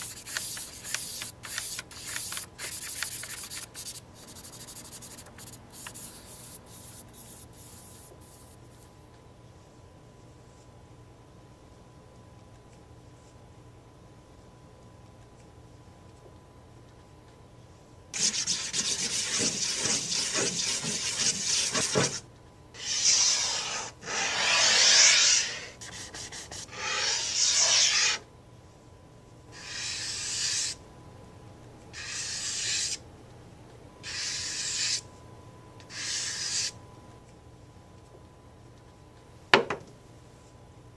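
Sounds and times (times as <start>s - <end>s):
charcoal scribbling on paper: 0.0s - 8.6s, 18.2s - 22.2s, 22.8s - 28.2s, 29.6s - 30.8s, 32.0s - 33.0s, 34.1s - 35.0s, 35.9s - 36.7s.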